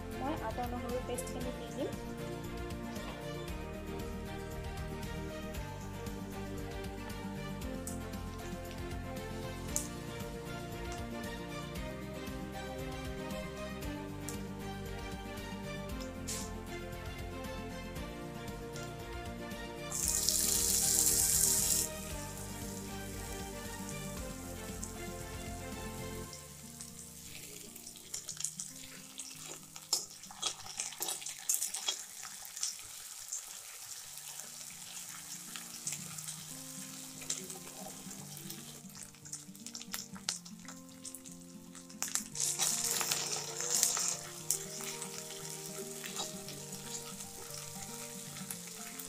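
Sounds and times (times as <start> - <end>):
food sizzling in hot oil: 1.1 - 11.5, 16.2 - 16.7, 19.8 - 49.0.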